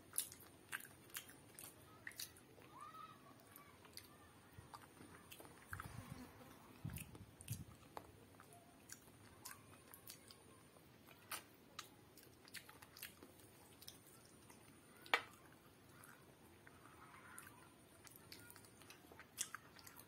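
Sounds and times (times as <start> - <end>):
wet chewing and lip smacks: 0.1 - 2.5, 6.8 - 10.4, 11.1 - 20.0.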